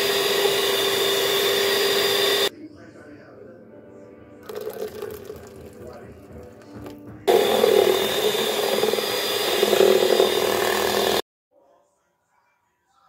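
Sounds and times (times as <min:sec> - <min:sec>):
electric hand mixer whirring: 0:00.0 - 0:02.5, 0:06.8 - 0:11.2.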